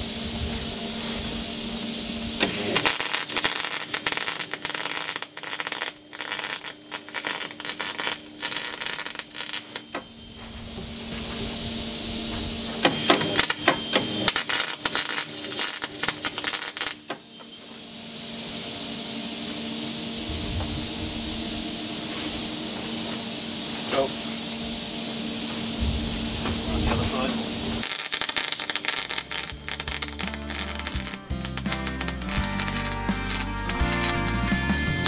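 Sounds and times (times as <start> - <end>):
steady hum and hiss: 0.0 - 35.0
welder arc crackling: 2.4 - 10.0, 12.8 - 17.1, 27.8 - 35.0.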